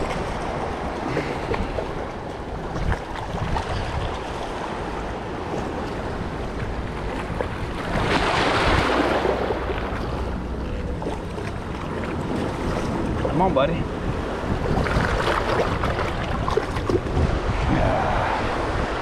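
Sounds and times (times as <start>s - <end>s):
wash of open water: 0.0s - 19.0s
wind buffeting microphone: 0.0s - 19.0s
rush of water-like noise: 14.4s - 19.0s.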